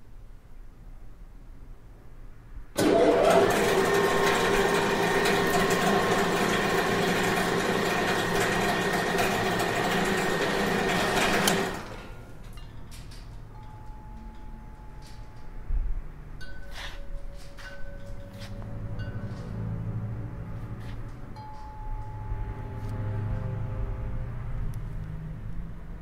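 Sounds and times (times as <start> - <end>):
factory machinery humming: 2.8 - 12.7.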